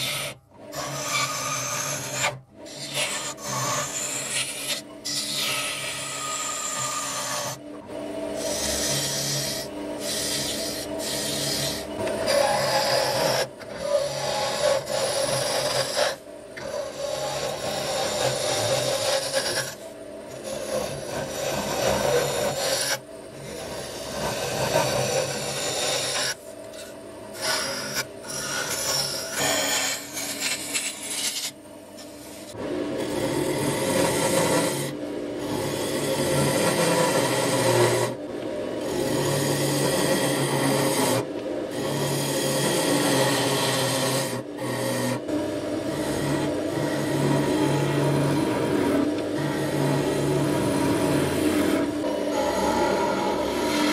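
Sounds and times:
lathe tool scraping wood: 0:00.0 - 0:07.6, 0:08.3 - 0:38.2, 0:38.8 - 0:53.9.

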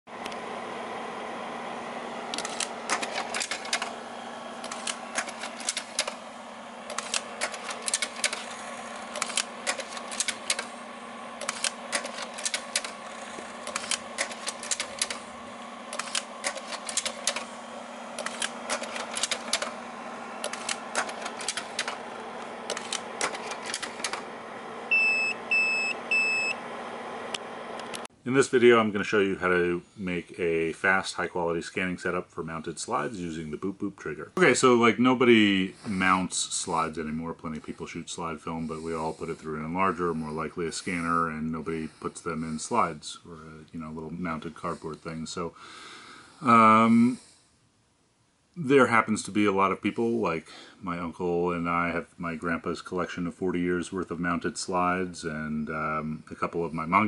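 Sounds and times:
projector fan hum: 0:00.1 - 0:57.0
rapid mechanical clicking: 0:02.2 - 0:24.3.

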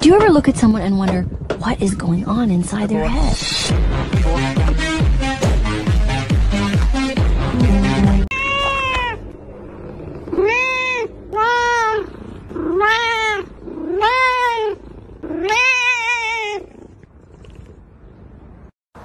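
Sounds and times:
cat meowing: 0:07.6 - 0:09.4, 0:10.3 - 0:16.8.

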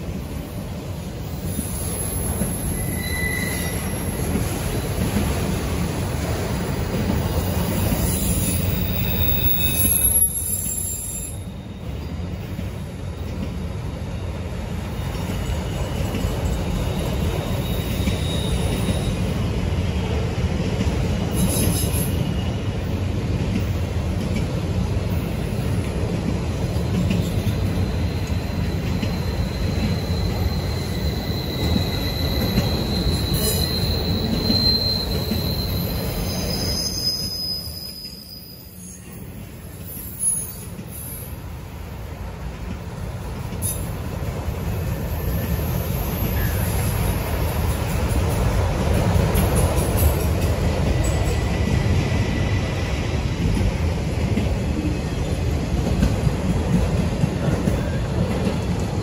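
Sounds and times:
train wheels rumbling on rails: 0:00.0 - 0:59.0
high wheel squeals: 0:01.5 - 0:04.3, 0:07.8 - 0:12.0, 0:15.3 - 0:19.3, 0:27.2 - 0:39.1.

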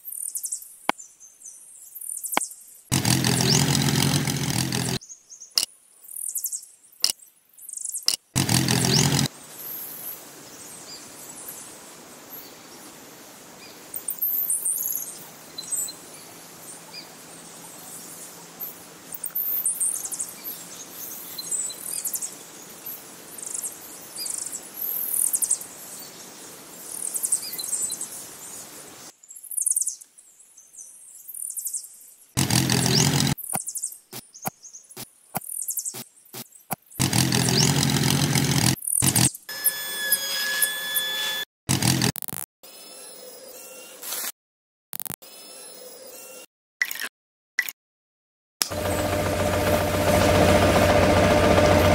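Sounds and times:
small birds chirping: 0:00.0 - 0:03.8, 0:04.8 - 0:11.7, 0:13.6 - 0:37.8
loud burst: 0:02.9 - 0:05.0, 0:08.4 - 0:09.3
sharp clicks and knocks: 0:02.9 - 0:05.0.

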